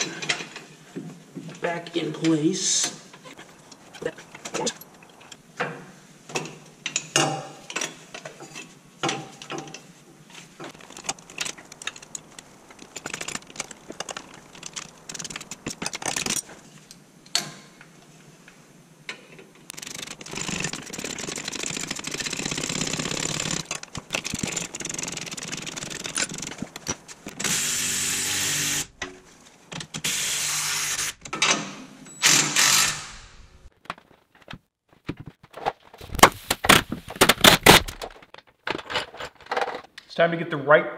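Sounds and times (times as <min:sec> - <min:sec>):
impact wrench running: 0:19.7 - 0:29.0, 0:32.2 - 0:33.6.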